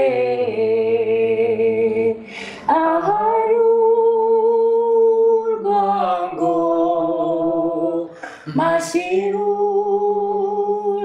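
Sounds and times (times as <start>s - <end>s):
man and woman singing gospel: 0.0s - 11.0s
person breathing: 2.2s - 2.7s, 8.1s - 8.6s.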